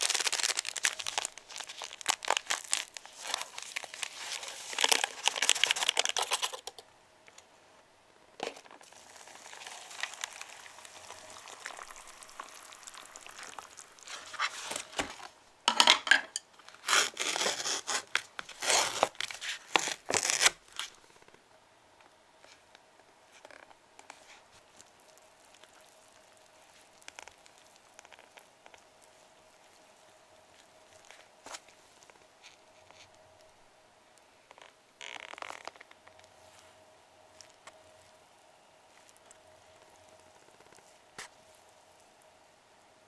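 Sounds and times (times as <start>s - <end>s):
foil and paper crinkling: 0.0s - 6.8s, 8.4s - 15.4s, 16.7s - 21.1s
hot water pouring: 8.8s - 15.2s.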